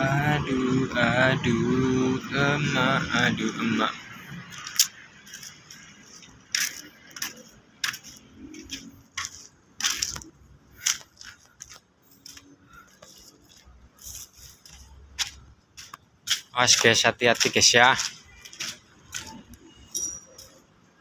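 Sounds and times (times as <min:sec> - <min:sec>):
footsteps on gritty concrete: 0:04.5 - 0:19.4.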